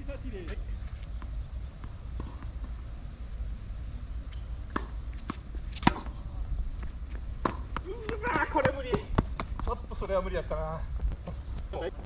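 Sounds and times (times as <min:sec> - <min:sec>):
steady low rumble: 0:00.0 - 0:12.0
tennis ball struck by rackets: 0:04.7 - 0:06.2, 0:07.4 - 0:09.6
ball bouncing on court: 0:07.4 - 0:09.7.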